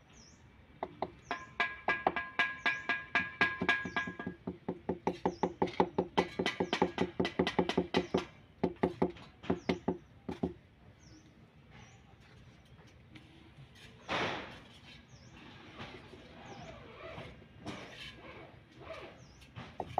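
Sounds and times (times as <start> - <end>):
knocking on ceramic tiles: 0.8 - 10.6.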